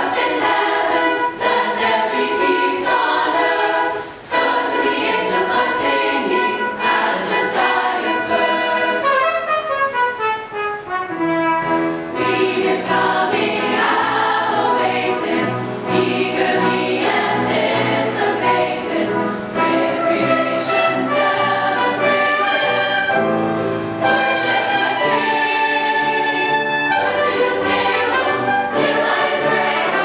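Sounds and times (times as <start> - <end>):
women's choir singing: 0.0 - 9.5, 12.1 - 30.0.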